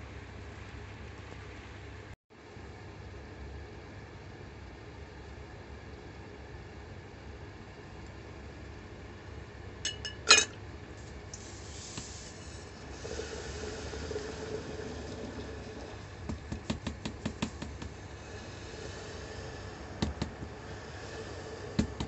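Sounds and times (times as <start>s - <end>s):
glassy clink in jar: 9.9s - 10.6s.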